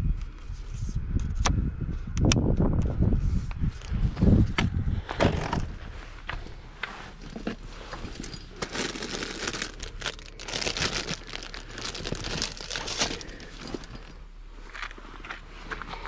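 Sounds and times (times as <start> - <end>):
plastic bag crinkling: 8.0 - 14.2.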